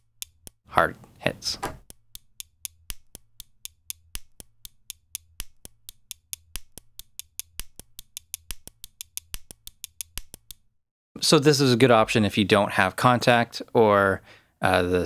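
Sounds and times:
rhythmic pen clicks: 0:00.0 - 0:00.7, 0:01.8 - 0:10.7.

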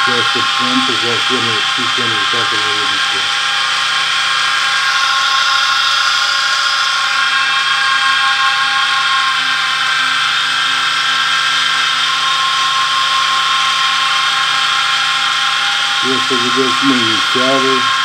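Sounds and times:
electric motor with gearbox whine: 0:00.0 - 0:18.0.

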